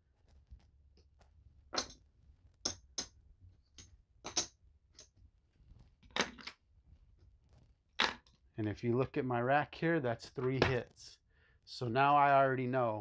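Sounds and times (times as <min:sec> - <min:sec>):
casino chips clacking: 0:01.8 - 0:02.0, 0:04.3 - 0:05.1.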